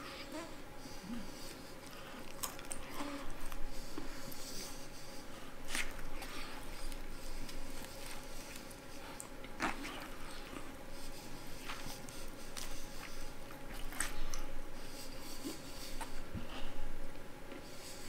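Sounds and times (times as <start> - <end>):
man chewing food: 0.0 - 18.0
mouth smacks: 9.2 - 10.7.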